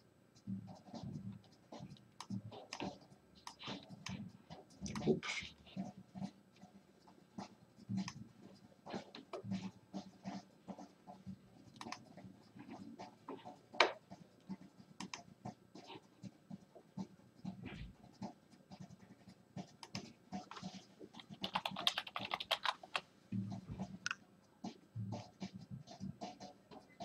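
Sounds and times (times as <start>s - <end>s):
keyboard typing: 11.7s - 16.6s, 19.6s - 24.2s.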